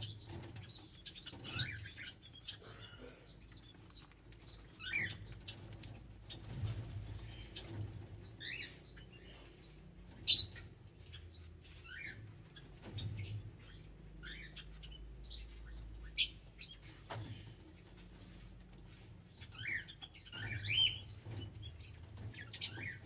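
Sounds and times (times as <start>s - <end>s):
parrots chirping and twittering: 0.0s - 23.0s.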